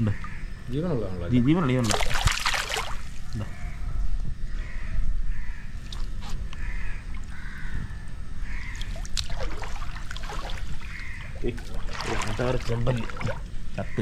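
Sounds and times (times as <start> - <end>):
crows cawing: 0.0 - 0.6, 3.3 - 5.8, 6.5 - 12.6, 13.8 - 14.0
wading through water: 1.8 - 3.7, 5.8 - 14.0.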